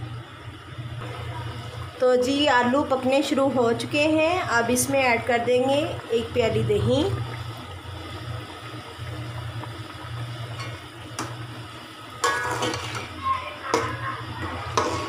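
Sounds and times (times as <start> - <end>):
steady low hum: 0.0 - 15.0
wet stirring in a pot: 3.7 - 15.0
metal tapping on a pot: 12.2 - 13.0.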